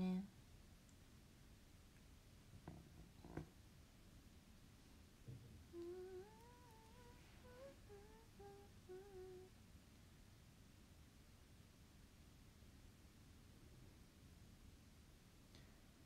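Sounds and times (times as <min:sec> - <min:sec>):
woman humming: 0:00.0 - 0:00.3, 0:05.6 - 0:09.6.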